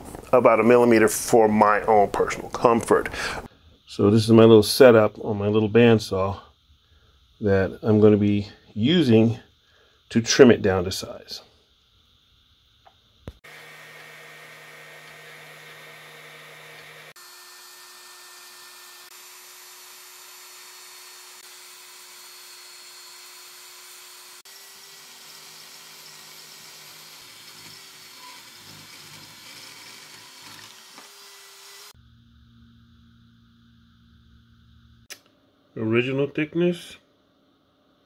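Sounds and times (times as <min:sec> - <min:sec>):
bandsaw cutting steel: 0:13.4 - 0:32.0.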